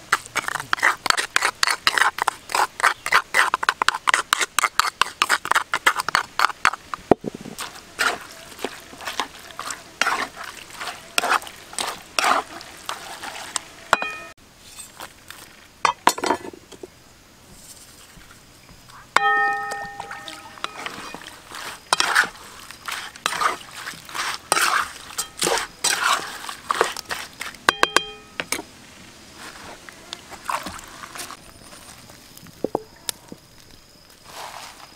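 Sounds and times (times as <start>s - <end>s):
utensil scraping in wok: 0.0s - 15.1s, 19.2s - 28.7s
ringing clink: 14.0s - 14.3s, 19.2s - 20.8s, 27.7s - 28.5s.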